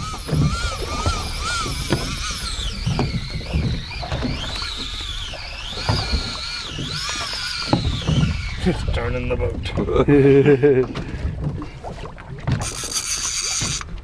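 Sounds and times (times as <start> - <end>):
fishing reel drag whining: 0.0 - 9.2, 12.6 - 14.0.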